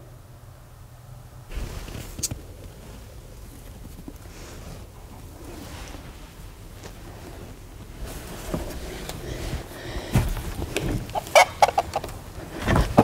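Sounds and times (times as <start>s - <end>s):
chickens clucking: 10.6s - 13.0s.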